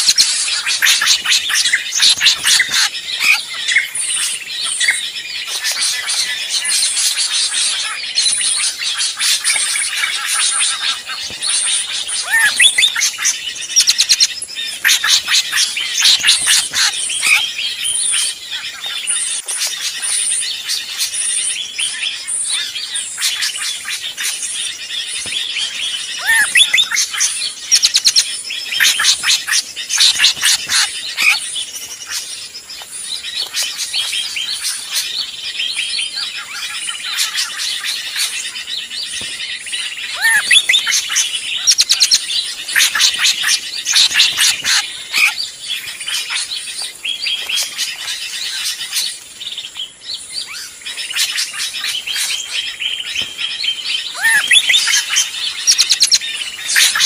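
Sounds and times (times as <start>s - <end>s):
drongo chirps and whistles: 0.0s - 57.0s.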